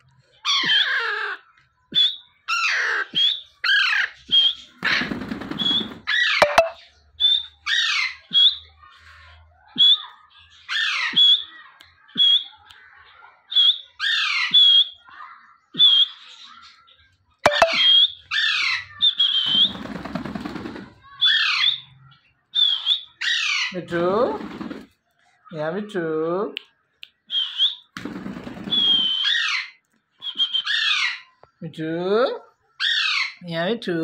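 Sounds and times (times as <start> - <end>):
parrot calling: 32.8 - 33.4.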